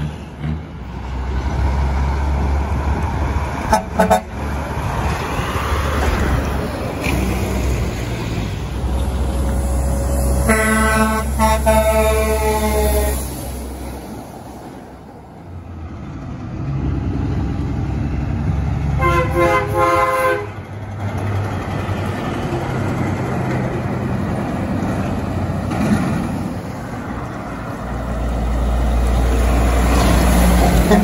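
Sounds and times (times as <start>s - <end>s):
passing trucks rumbling: 0.0s - 31.0s
truck air horn: 3.7s - 4.4s, 10.3s - 13.4s, 19.0s - 20.6s.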